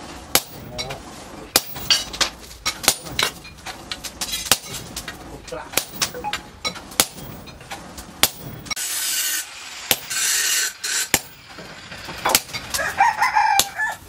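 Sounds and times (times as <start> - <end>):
hammer striking hot metal: 0.3 - 13.9
rasping metal scrapes: 6.6 - 13.0
rooster crowing: 12.7 - 14.0.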